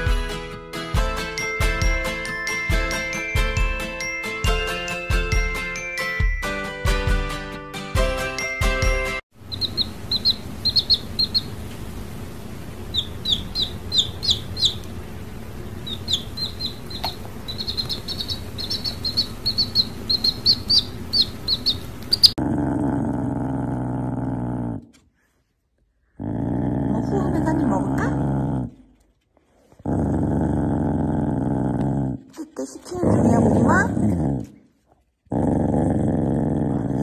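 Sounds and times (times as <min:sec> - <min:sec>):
chick peeping: 0:09.4 - 0:11.6, 0:12.9 - 0:14.9, 0:15.8 - 0:22.3.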